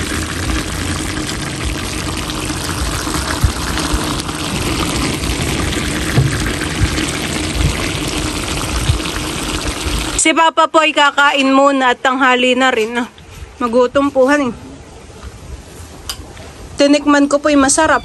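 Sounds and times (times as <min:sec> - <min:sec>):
food sizzling in a wok: 0:00.0 - 0:10.2.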